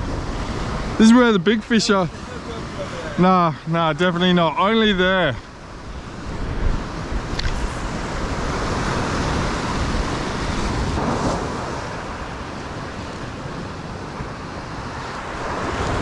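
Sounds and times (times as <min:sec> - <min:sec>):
ocean swell breaking on rocks: 0:00.0 - 0:16.0
wind buffeting microphone: 0:04.7 - 0:16.0.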